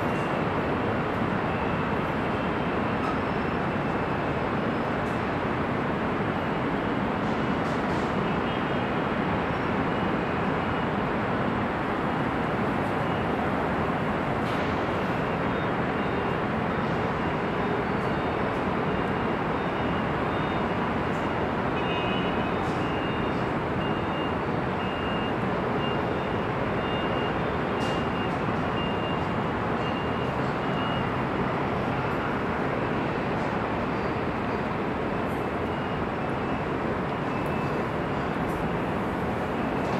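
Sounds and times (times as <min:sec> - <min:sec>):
dense freeway traffic: 0:00.0 - 0:39.9.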